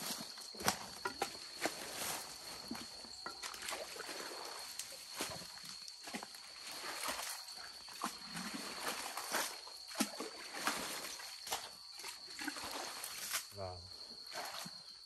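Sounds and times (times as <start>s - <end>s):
hoe chopping through wet mud: 0.6s - 4.2s, 5.2s - 11.7s
water sloshing: 0.6s - 13.5s, 14.2s - 15.0s.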